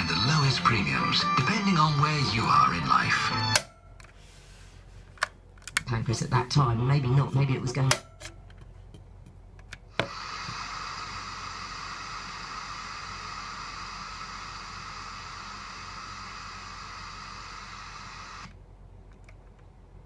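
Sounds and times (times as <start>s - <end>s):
radio static hiss: 0.0s - 3.6s, 5.9s - 8.0s, 10.0s - 18.6s.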